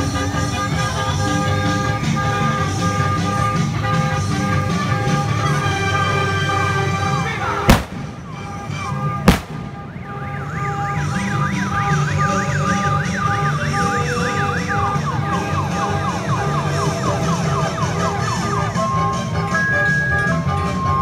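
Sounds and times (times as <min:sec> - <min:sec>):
sharp cracks: 0:07.7 - 0:10.4.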